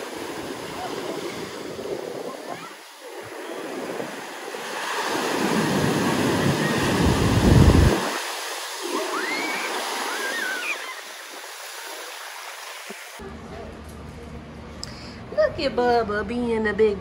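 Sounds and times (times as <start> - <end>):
ocean surf on beach: 0.0 - 13.2.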